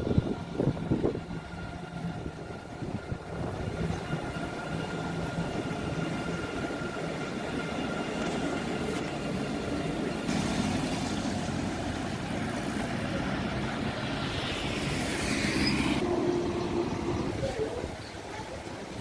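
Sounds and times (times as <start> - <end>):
city traffic hum: 0.0 - 19.0
vehicle passing with hiss: 13.7 - 16.0.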